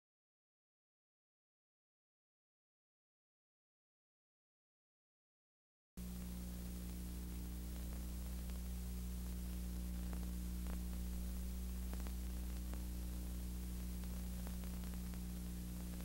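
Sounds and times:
electrical hum with hiss: 6.0s - 16.0s
faint clicks: 6.2s - 16.0s.

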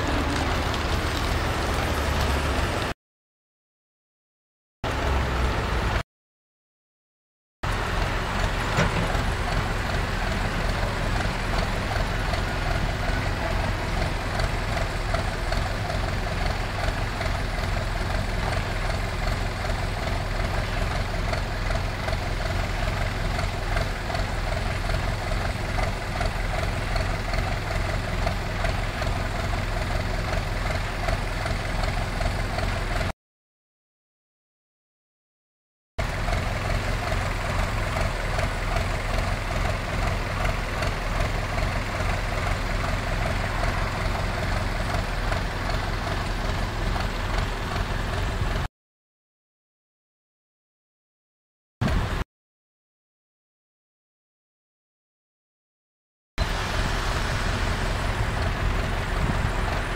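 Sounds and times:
diesel machinery engine rumble: 0.0s - 3.0s, 4.8s - 6.0s, 7.6s - 33.1s, 36.0s - 48.7s, 51.8s - 52.2s, 56.4s - 59.9s.

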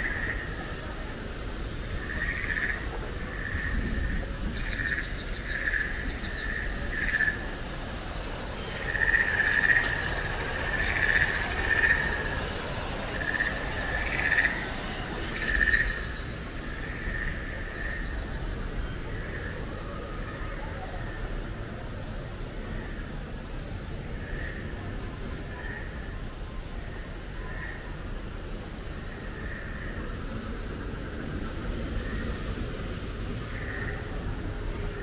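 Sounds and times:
frogs calling in a chorus: 0.0s - 0.8s, 1.9s - 18.4s, 33.3s - 35.0s
high frog trills: 8.3s - 18.1s.

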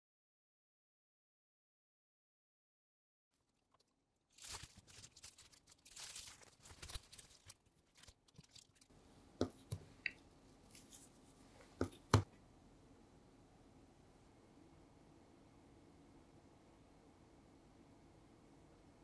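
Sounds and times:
plastic wrap crinkling: 3.4s - 8.9s.

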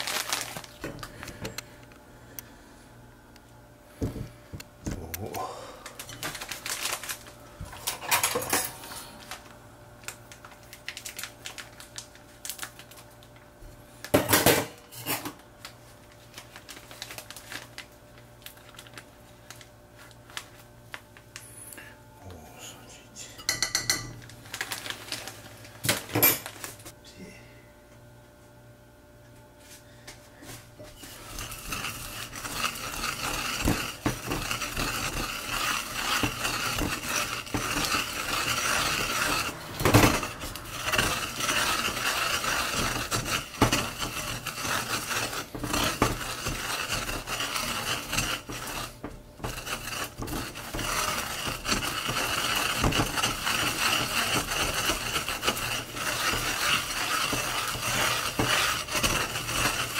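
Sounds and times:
pestle grinding seeds in mortar: 30.8s - 59.9s.

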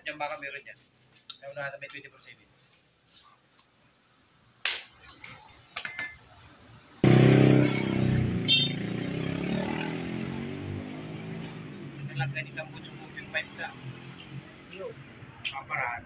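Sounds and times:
light metal clinks: 5.0s - 6.4s.

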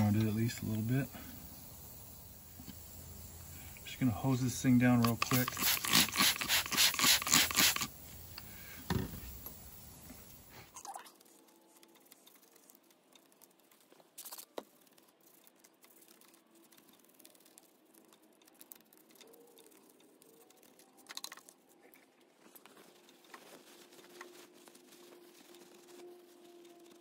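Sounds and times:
toothbrush scrubbing metal: 4.0s - 7.9s.

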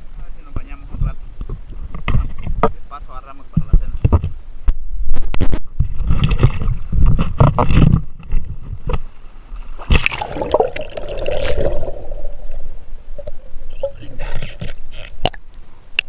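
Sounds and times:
river water splashing: 9.6s - 14.0s.

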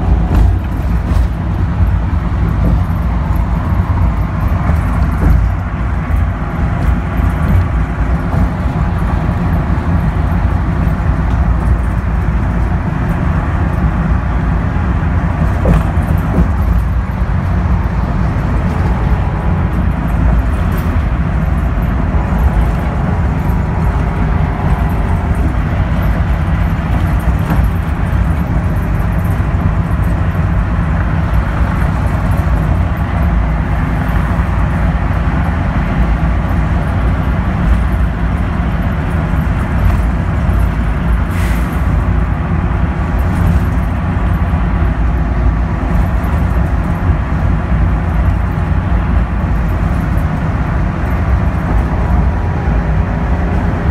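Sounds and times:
bus engine and road drone: 0.0s - 53.9s.

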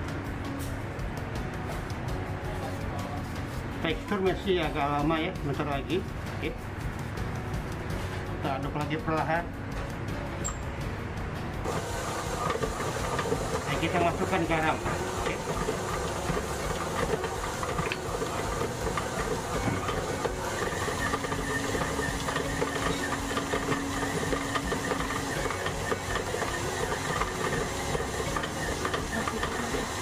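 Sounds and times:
stand mixer motor whirring: 11.7s - 30.0s.

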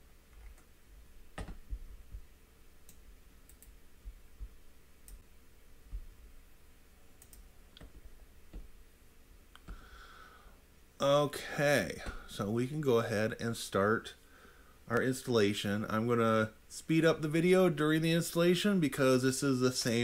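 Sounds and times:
low steady hum: 0.0s - 20.0s
computer control clicks: 7.2s - 8.7s.

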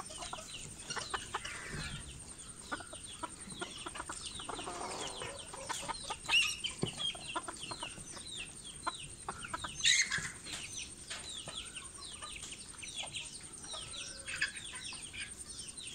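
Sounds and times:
chickens clucking and chirping: 0.0s - 15.9s.

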